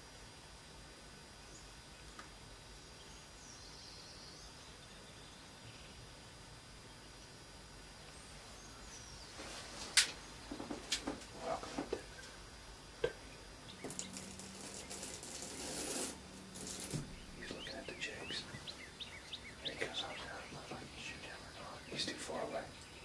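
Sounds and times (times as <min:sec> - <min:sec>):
low hum: 0:00.0 - 0:23.0
steady hiss: 0:00.0 - 0:23.0
small birds chirping: 0:02.8 - 0:09.6, 0:12.0 - 0:23.0.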